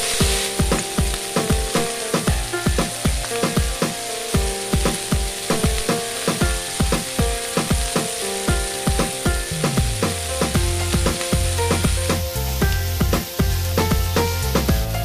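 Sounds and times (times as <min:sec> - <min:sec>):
background music with steady beat: 0:00.0 - 0:15.0
vegetables sizzling in oil: 0:00.0 - 0:15.0
deep bass line: 0:09.5 - 0:15.0.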